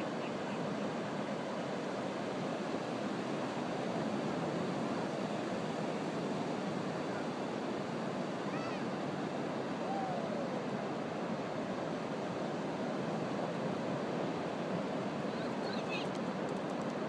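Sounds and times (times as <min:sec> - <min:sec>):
ocean surf washing: 0:00.0 - 0:17.0
faint cries: 0:08.4 - 0:08.9, 0:09.8 - 0:10.6.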